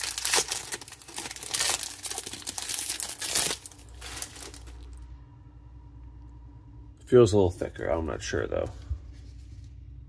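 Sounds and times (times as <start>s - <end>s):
card pack wrapper crinkling: 0.0s - 5.0s.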